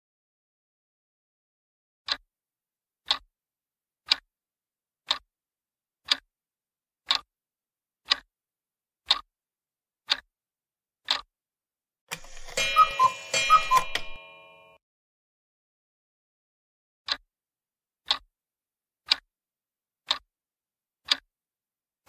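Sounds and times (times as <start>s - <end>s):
clock ticking: 3.0s - 3.3s, 4.0s - 4.3s, 5.0s - 5.3s, 6.0s - 6.3s, 7.0s - 7.3s, 8.0s - 8.3s, 9.0s - 9.3s, 10.1s - 10.3s, 11.0s - 11.3s, 12.1s - 14.8s, 18.0s - 18.3s, 19.0s - 19.3s, 20.0s - 20.3s, 21.0s - 21.3s
bright chiming jingle: 12.2s - 14.8s.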